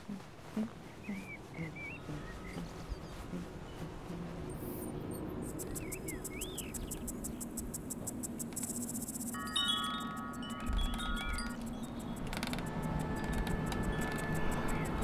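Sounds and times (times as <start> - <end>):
metal wind chime ringing: 9.4 - 12.1.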